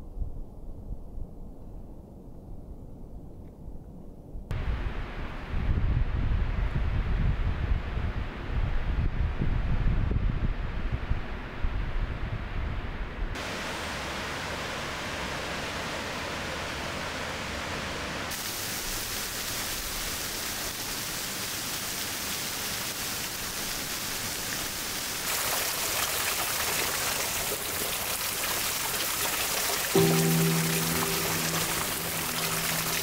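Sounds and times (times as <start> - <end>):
fast-flowing water rushing: 25.2 - 33.0.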